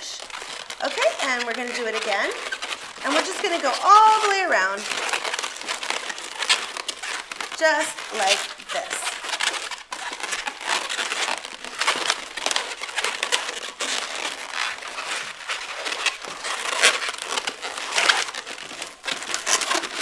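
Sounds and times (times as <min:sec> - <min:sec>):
balloons rubbing and squeaking: 0:00.0 - 0:20.0.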